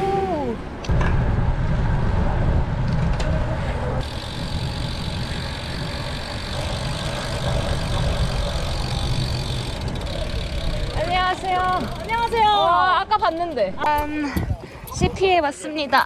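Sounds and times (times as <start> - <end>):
wind rushing over microphone: 0.0 - 11.4.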